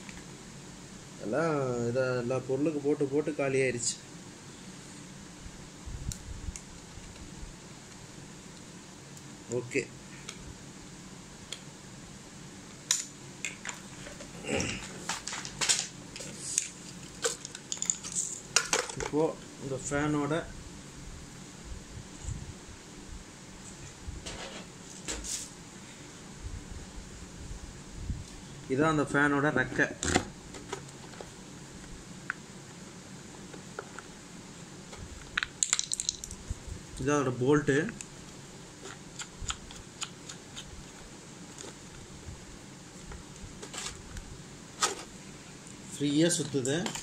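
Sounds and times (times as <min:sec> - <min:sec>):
plastic and metal parts clattering: 0:13.6 - 0:19.2, 0:44.8 - 0:45.1.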